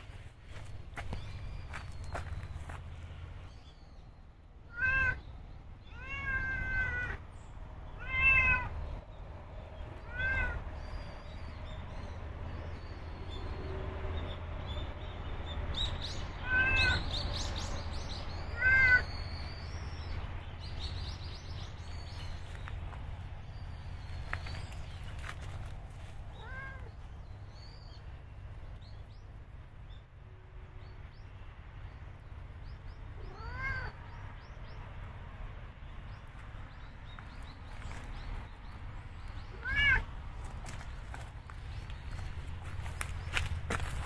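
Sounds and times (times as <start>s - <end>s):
cat meowing: 4.7s - 5.2s, 5.9s - 7.2s, 8.0s - 8.7s, 10.0s - 10.6s, 16.4s - 17.1s, 18.5s - 19.1s, 26.3s - 26.9s, 33.2s - 34.0s, 39.5s - 40.1s.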